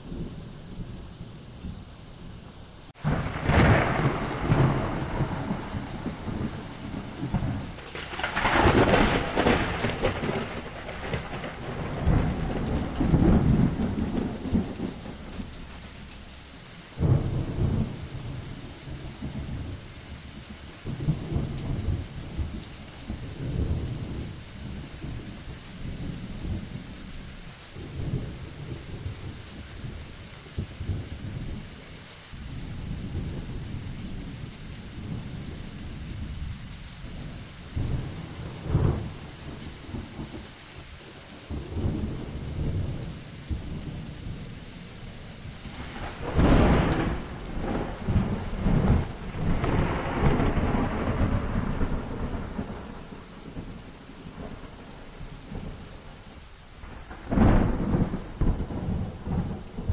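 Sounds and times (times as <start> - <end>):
rolling thunder: 0.0 - 30.0, 32.4 - 56.0, 56.8 - 59.9
steady rain: 0.0 - 59.9
loud thunderclap: 3.0 - 16.0, 17.0 - 19.8, 37.1 - 40.4, 45.5 - 54.8, 56.8 - 59.9.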